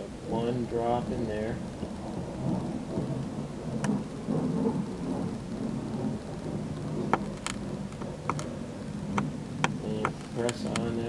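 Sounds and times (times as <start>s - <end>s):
low rumbling noise: 0.0s - 11.0s.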